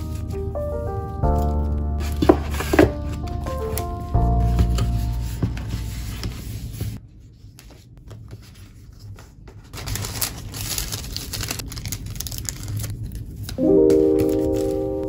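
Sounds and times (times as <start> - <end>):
cardboard mailer rustling: 1.4 - 7.0, 9.6 - 15.0
plastic sleeve crinkling: 9.6 - 15.0.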